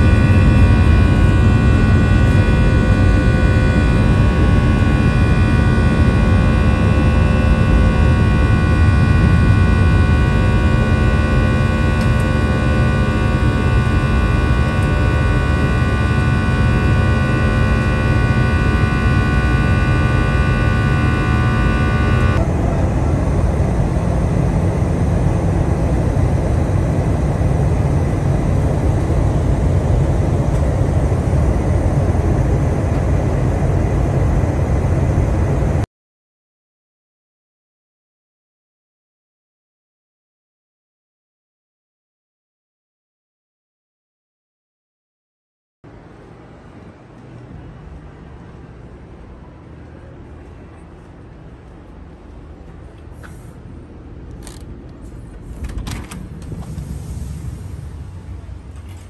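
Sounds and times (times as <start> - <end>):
airplane engine rumble: 0.0 - 35.8, 45.9 - 59.0
whining tones: 0.0 - 35.8
rush of air: 56.2 - 59.0.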